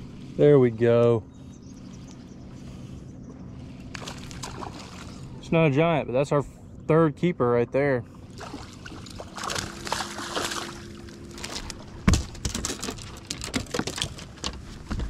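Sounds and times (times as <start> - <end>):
water splashing and trickling: 3.6 - 5.7, 8.2 - 14.8
clicks and knocks in boat: 11.3 - 15.0.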